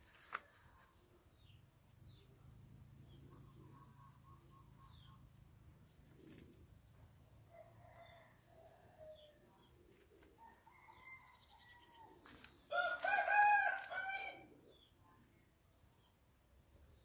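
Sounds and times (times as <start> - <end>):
faint bird calls: 3.1 - 6.6
rooster crowing: 12.7 - 14.4.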